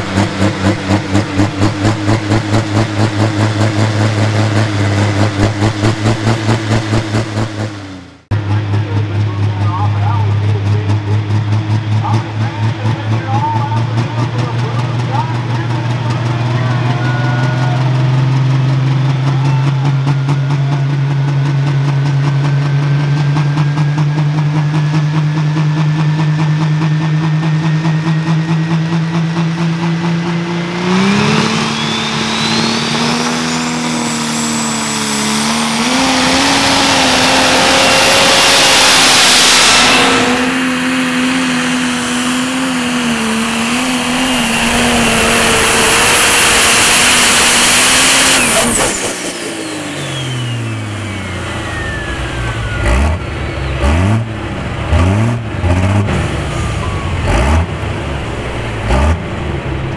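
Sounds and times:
tractor diesel engine running hard: 0:00.0 - 0:59.9
turbo whine: 0:30.4 - 0:53.8.

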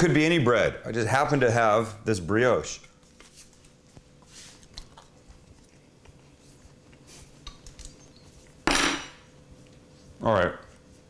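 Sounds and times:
quiet eating: 0:02.7 - 0:08.6, 0:09.3 - 0:11.0.

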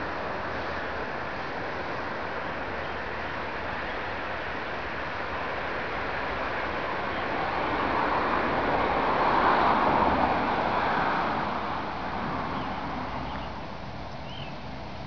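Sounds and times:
road vehicle passing by: 0:04.9 - 0:15.0.

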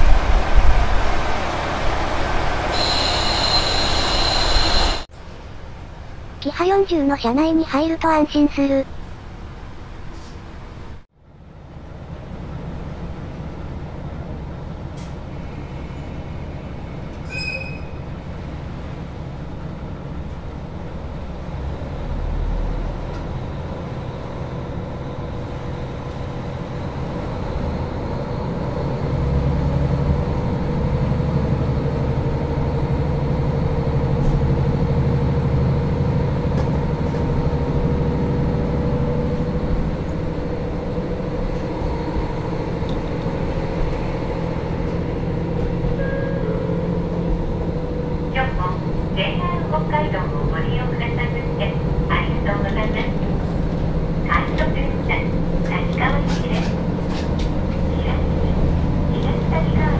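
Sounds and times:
diesel railcar engine running: 0:00.0 - 0:59.9
brief high tone: 0:02.7 - 0:05.0, 0:46.0 - 0:46.8.

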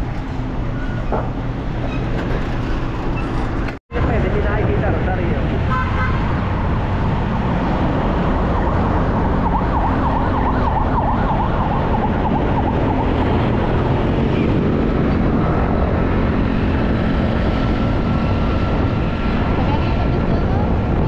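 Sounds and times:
vehicle road and engine noise: 0:00.0 - 0:21.0
siren yelping: 0:08.5 - 0:13.5.

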